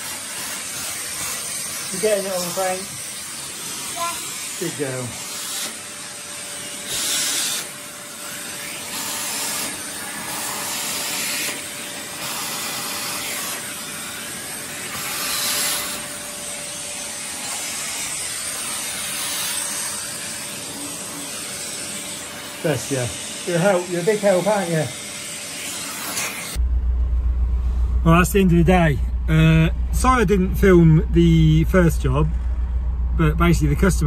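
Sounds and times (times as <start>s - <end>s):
vacuum cleaner running: 0.0s - 26.6s
vacuum nozzle sucking debris: 0.0s - 26.6s.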